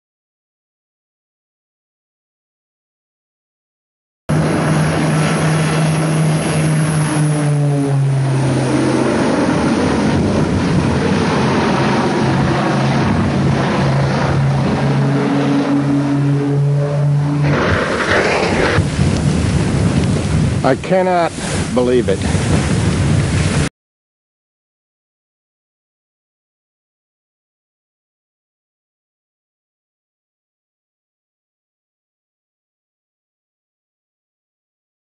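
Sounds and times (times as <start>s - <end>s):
loud rush of noise: 4.3s - 23.7s
propeller aircraft droning overhead: 4.3s - 23.7s.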